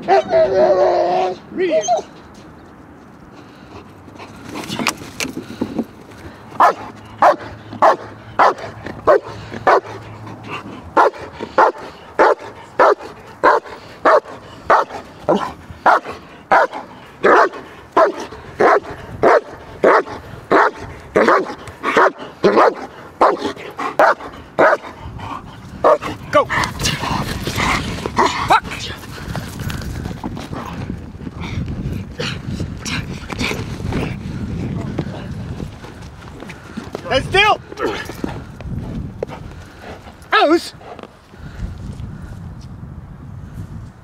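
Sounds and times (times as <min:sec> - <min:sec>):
dog barking: 0:06.6 - 0:10.0, 0:11.0 - 0:24.9, 0:25.8 - 0:26.1.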